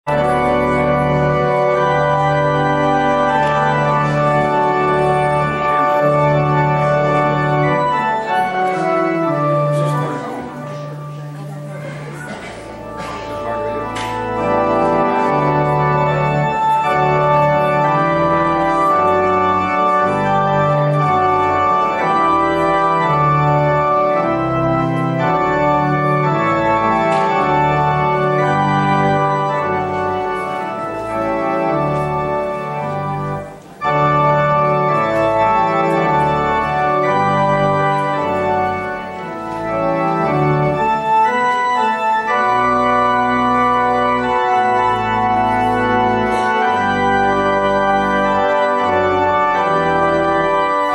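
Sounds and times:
organ playing chords: 0.0s - 50.9s.

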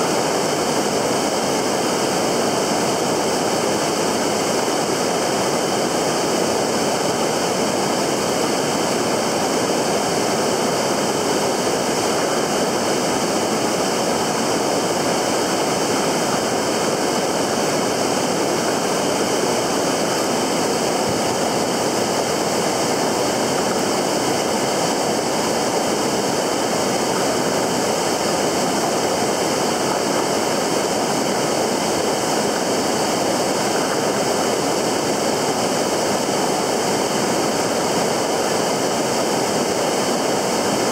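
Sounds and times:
fast-flowing river water rushing: 0.0s - 40.9s.

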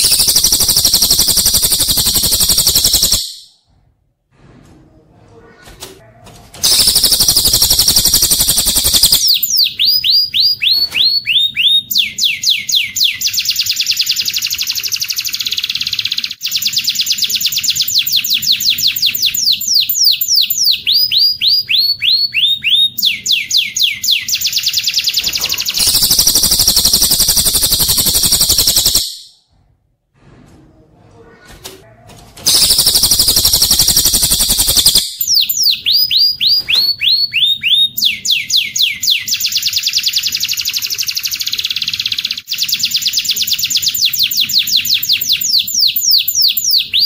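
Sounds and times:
bird trilling: 0.0s - 3.5s, 6.6s - 14.0s, 32.5s - 40.6s.

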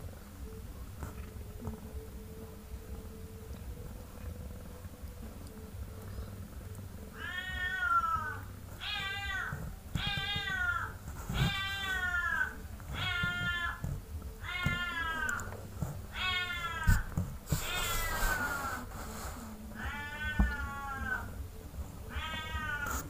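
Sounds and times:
cat meowing: 7.1s - 13.8s, 14.4s - 15.5s, 16.1s - 18.5s, 19.8s - 21.3s, 22.1s - 23.0s.

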